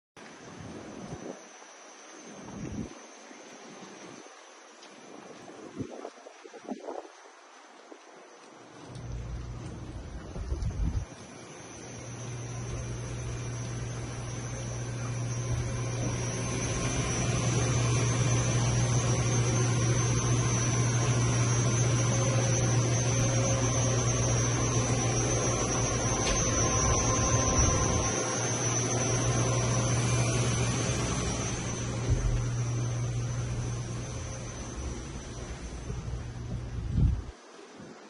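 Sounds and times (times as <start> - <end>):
faint high-pitched whine: 0.2 - 38.0
steady low hum: 8.0 - 38.0.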